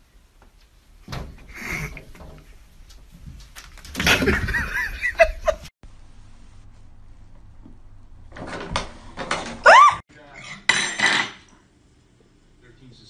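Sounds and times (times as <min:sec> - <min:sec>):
person giggling: 0:04.1 - 0:05.7.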